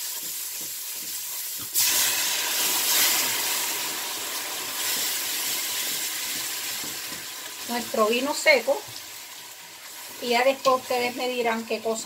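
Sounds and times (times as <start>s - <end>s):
wine hissing in hot pot: 0.0s - 6.8s
sauce sizzling: 0.0s - 12.0s.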